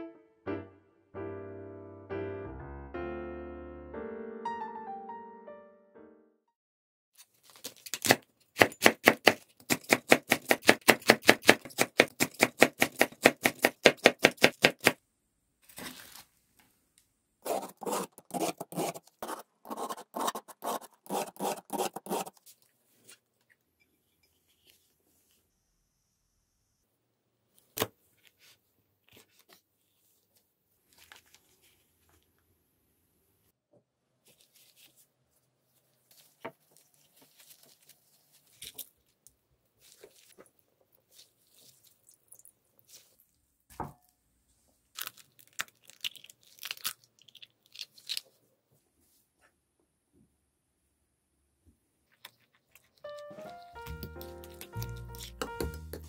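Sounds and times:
knife chopping on wooden board: 0:08.0 - 0:15.0, 0:53.9 - 0:56.0
peeler scraping carrot: 0:17.4 - 0:22.4, 0:54.2 - 0:56.0
faint handling noises: 0:27.5 - 0:32.5, 0:34.2 - 0:42.0.

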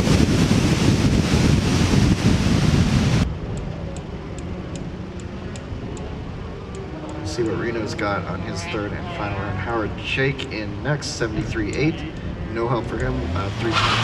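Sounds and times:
wind buffeting microphone: 0:00.0 - 0:13.7
faint high ticks: 0:03.5 - 0:06.1, 0:06.7 - 0:08.1, 0:11.6 - 0:12.3, 0:12.9 - 0:13.2.

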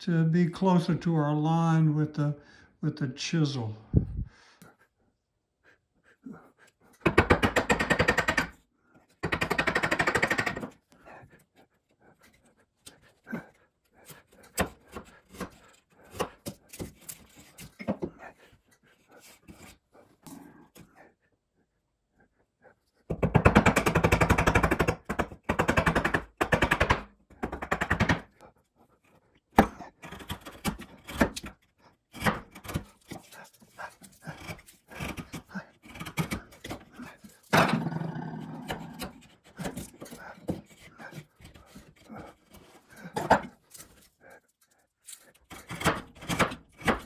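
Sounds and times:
chisel scraping wood: 0:06.7 - 0:20.8, 0:29.0 - 0:37.6, 0:38.4 - 0:44.4, 0:45.0 - 0:47.0.

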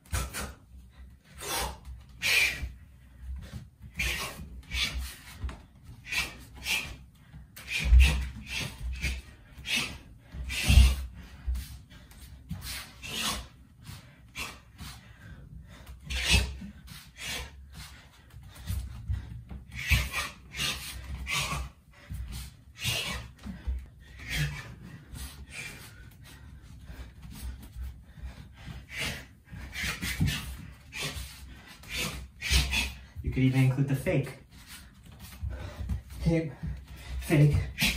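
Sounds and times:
bare feet thudding on wooden floor: 0:34.6 - 0:37.9.

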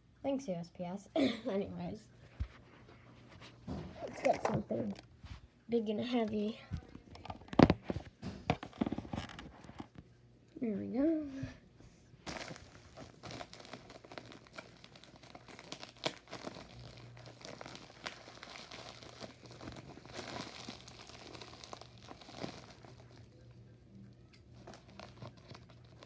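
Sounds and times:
plastic mailer bag crinkling: 0:12.2 - 0:23.5, 0:24.5 - 0:26.0.

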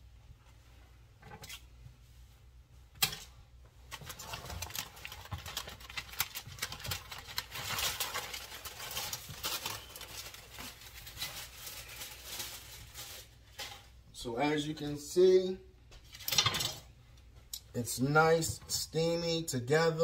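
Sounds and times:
aluminium foil crinkling: 0:03.9 - 0:14.0.

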